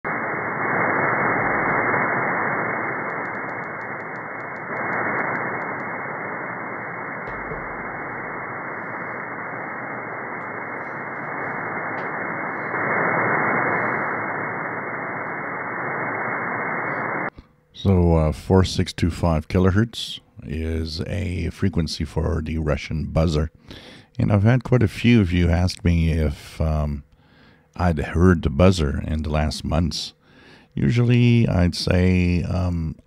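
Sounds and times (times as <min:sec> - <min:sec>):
radio static hiss: 0:00.0 - 0:27.0, 0:27.8 - 0:33.0
faint fast ticks: 0:03.0 - 0:05.9.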